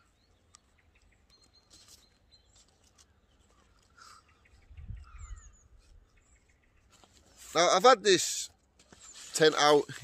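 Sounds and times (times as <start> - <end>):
small birds chirping: 0.0 - 10.0
wind buffeting microphone: 4.6 - 6.1.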